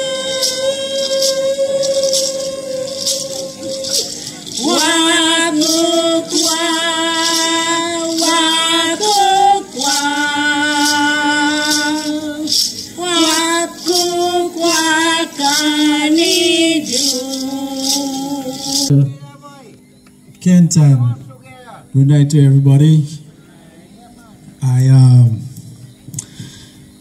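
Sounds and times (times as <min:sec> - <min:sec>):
women singing into a microphone: 0:00.0 - 0:18.9
hand rattle shaken: 0:00.0 - 0:19.0.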